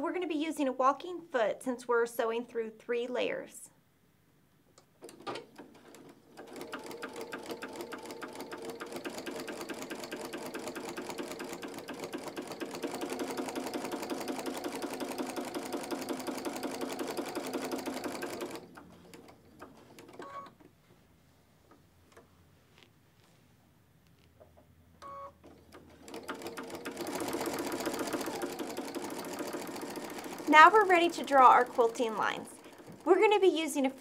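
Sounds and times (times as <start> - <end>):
sewing machine stitching: 5.0 - 20.6, 25.3 - 33.5.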